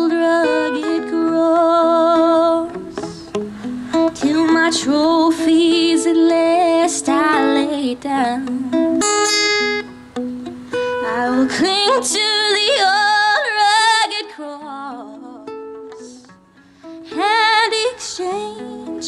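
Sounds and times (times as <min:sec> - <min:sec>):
woman singing a hymn: 0:00.0 - 0:02.9, 0:04.1 - 0:08.8, 0:11.0 - 0:16.3, 0:17.1 - 0:19.0
acoustic guitar plucking: 0:00.0 - 0:19.0.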